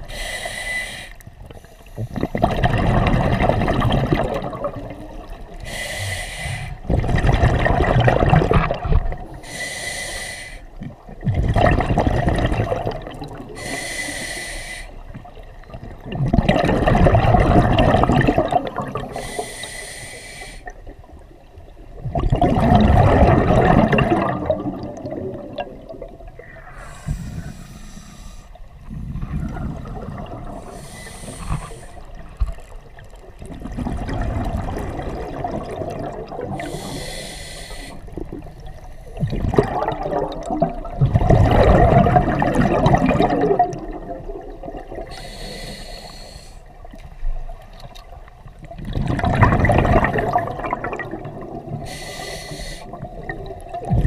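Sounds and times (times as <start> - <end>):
hissing regulator inhale: 0.0 - 2.2, 5.6 - 6.8, 9.4 - 10.7, 13.6 - 15.0, 19.1 - 20.7, 26.5 - 28.6, 30.6 - 32.2, 36.6 - 38.2, 45.1 - 46.7, 51.8 - 53.1
exhaled bubbles rushing: 2.0 - 5.6, 6.8 - 9.4, 10.8 - 13.6, 15.1 - 19.2, 21.8 - 27.5, 28.8 - 37.0, 38.1 - 45.2, 48.0 - 51.9, 52.9 - 54.0.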